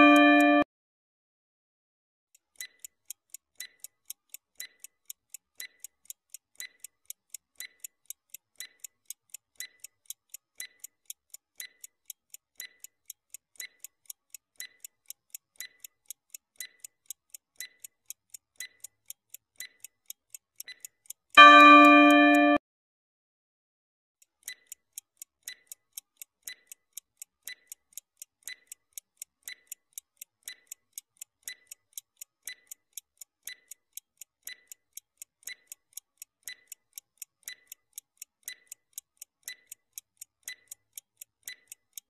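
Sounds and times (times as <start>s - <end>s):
clock ticking: 0.0s - 0.6s, 2.4s - 22.6s, 24.2s - 42.0s
loud steady tone: 0.0s - 0.6s.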